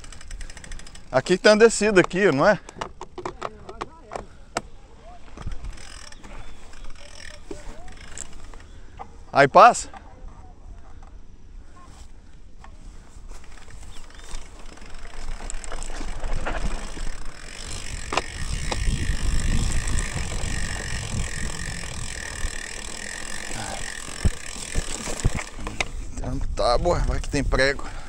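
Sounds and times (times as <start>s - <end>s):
bike tyres rumbling on dirt: 0.0s - 2.7s, 5.0s - 8.8s, 12.9s - 28.0s
freewheel ratchet buzzing: 0.0s - 2.9s, 5.4s - 8.9s, 13.3s - 26.0s
bike knocking and rattling: 0.0s - 10.2s, 12.6s - 28.0s.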